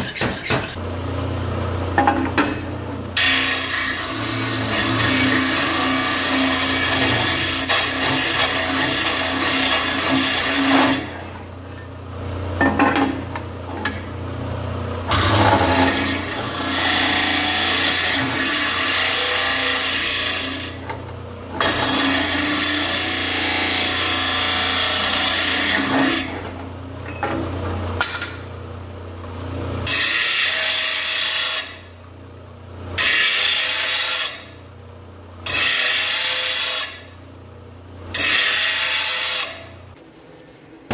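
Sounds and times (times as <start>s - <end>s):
disc sander grinding steel: 3.2s - 11.3s, 15.1s - 20.8s, 21.6s - 26.4s.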